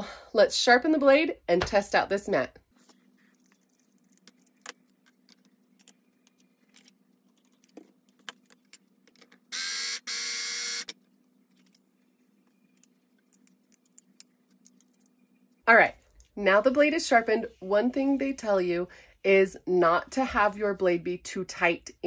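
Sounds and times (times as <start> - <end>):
electric blade sharpener grinding: 9.5 - 10.9.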